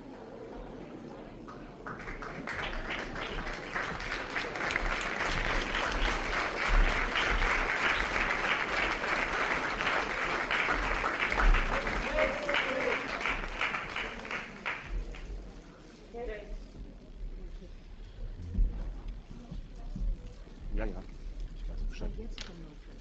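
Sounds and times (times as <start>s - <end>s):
audience applauding: 1.8s - 15.3s.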